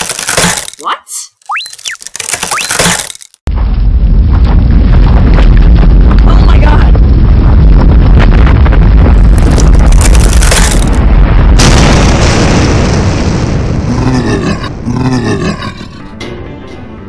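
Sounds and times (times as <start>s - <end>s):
sudden crash: 3.5s - 14.9s
heavy rumbling boom: 3.5s - 15.2s
low growling voice: 13.9s - 16.1s.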